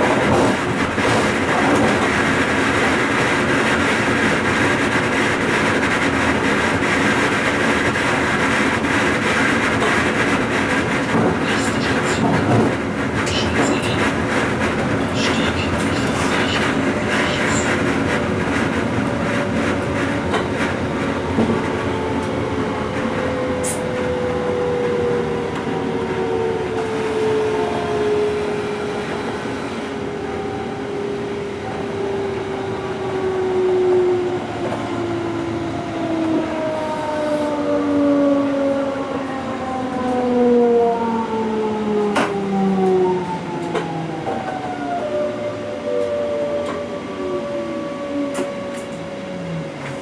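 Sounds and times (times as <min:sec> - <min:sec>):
train traction motors whining: 0:41.0 - 0:50.0.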